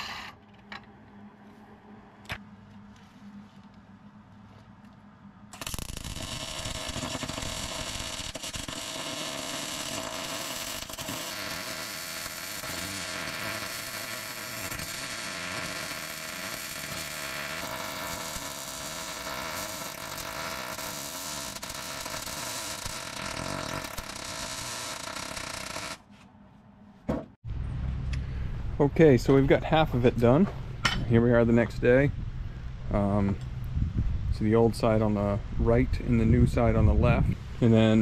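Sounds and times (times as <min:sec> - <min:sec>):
welding arc crackling: 0:05.5 - 0:26.0.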